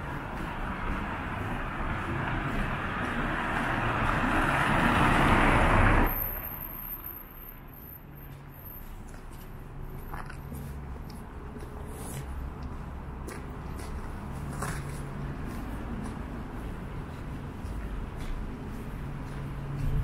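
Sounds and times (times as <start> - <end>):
car driving past: 1.0 - 6.5.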